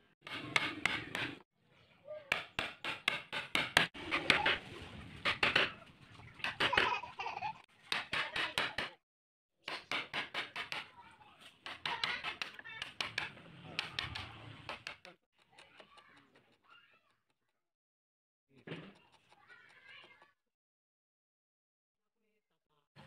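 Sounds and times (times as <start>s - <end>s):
chisel knocking into wood: 2.3s - 4.0s, 7.9s - 9.0s, 9.7s - 10.9s, 11.6s - 15.1s.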